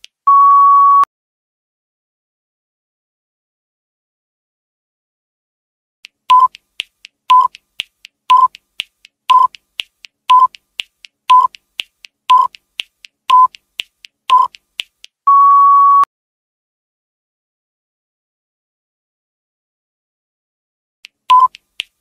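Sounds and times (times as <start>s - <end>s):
long higher beep: 0.3s - 1.1s, 15.3s - 16.1s
light ticks: 6.0s - 15.2s
countdown timer beeps: 6.3s - 6.6s, 7.3s - 7.6s, 8.3s - 8.6s, 9.3s - 9.6s, 10.3s - 10.6s, 11.3s - 11.6s, 12.3s - 12.6s, 13.3s - 13.6s, 14.3s - 14.6s, 21.3s - 21.6s.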